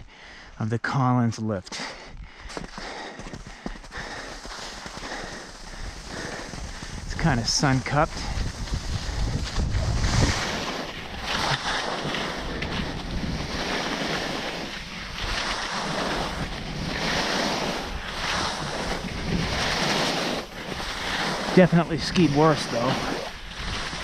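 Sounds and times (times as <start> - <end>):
skis hissing over snow: 3.4 - 24.0
wind on microphone: 5.1 - 24.0.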